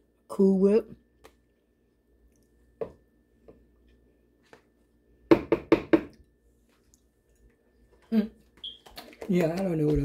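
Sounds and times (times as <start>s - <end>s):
spoon rapping on blender cup: 8.6s - 10.0s.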